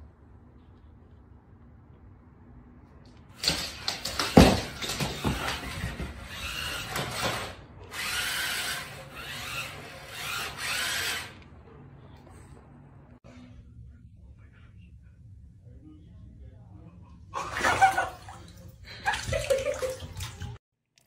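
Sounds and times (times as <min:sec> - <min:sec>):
toy car motor whirring: 0:05.5 - 0:11.4.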